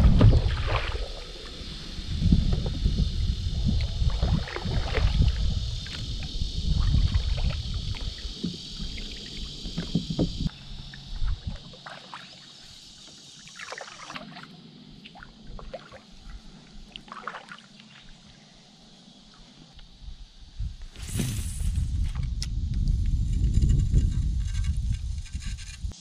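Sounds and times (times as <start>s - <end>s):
paddle splashing in water: 0.0s - 1.4s, 4.2s - 6.0s, 11.3s - 12.5s, 13.4s - 16.0s, 16.9s - 18.1s
wind rumbling on microphone: 0.0s - 10.5s, 11.1s - 11.8s, 19.8s - 26.0s.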